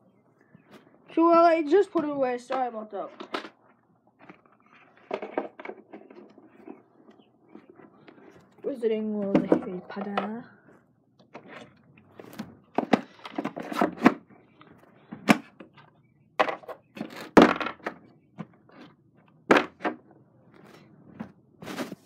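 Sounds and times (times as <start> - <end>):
objects knocking and clunking: 2.0 - 22.0.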